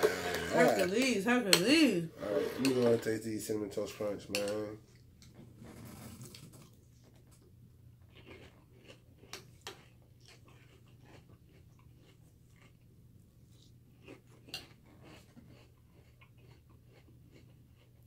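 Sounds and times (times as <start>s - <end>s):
faint chewing: 4.3s - 18.0s.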